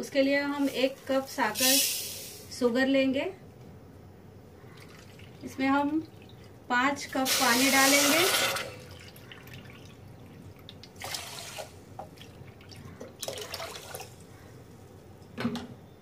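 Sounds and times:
water dripping: 0:04.7 - 0:07.2, 0:08.5 - 0:14.3
water pouring into a steel pot: 0:07.1 - 0:14.2.

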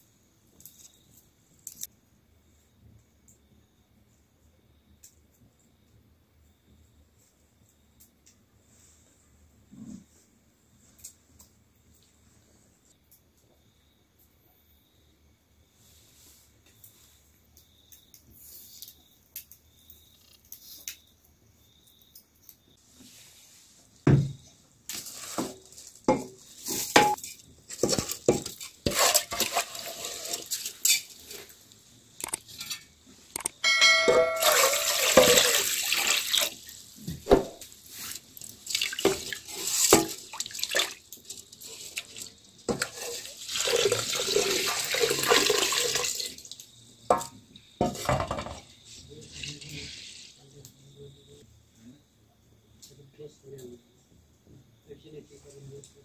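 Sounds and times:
metal pots knocking and clinking: 0:26.1 - 0:29.9, 0:33.6 - 0:35.7, 0:47.1 - 0:48.7
water pouring: 0:28.9 - 0:31.4, 0:34.2 - 0:36.9, 0:38.0 - 0:46.6, 0:49.2 - 0:50.3.

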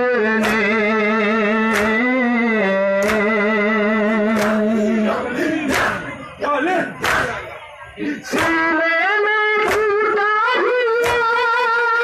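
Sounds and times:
chest beating slaps: 0:00.4 - 0:00.7, 0:01.7 - 0:02.1, 0:04.3 - 0:06.1, 0:06.9 - 0:07.4, 0:08.3 - 0:08.7, 0:11.0 - 0:11.4.

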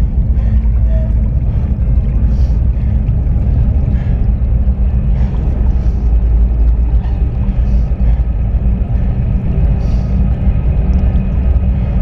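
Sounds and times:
constant low hum: 0:00.0 - 0:12.0
train rumbling in a tunnel: 0:00.0 - 0:12.0.

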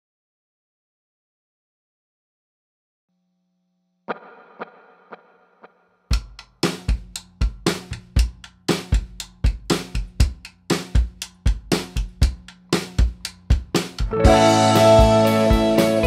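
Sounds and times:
drum kit beat: 0:06.1 - 0:16.0
band playing with guitar: 0:14.0 - 0:16.0.

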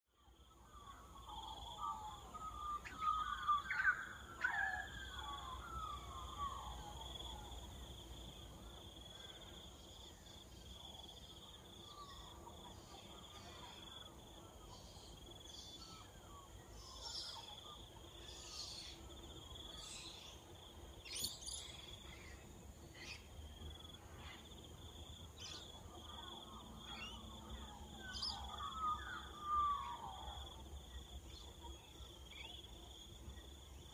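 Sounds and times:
birds calling: 0:00.7 - 0:07.6, 0:25.4 - 0:30.5.

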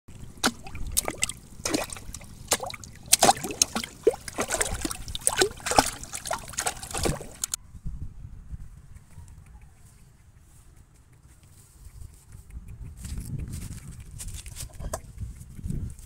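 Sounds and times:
muddy water splashing: 0:00.1 - 0:07.6.

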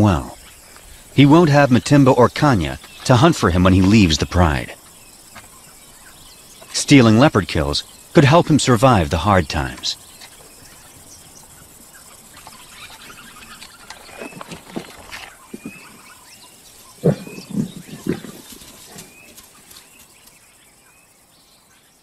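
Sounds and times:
lions growling and snarling: 0:12.7 - 0:19.4.

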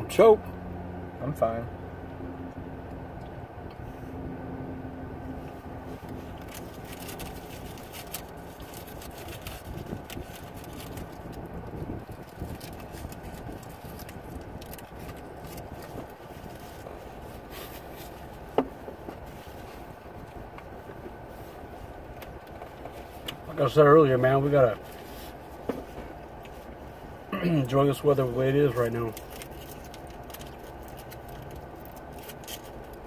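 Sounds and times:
low hum inside car: 0:00.0 - 0:33.0
foil wrappers crinkling: 0:06.0 - 0:16.8, 0:28.8 - 0:33.0.

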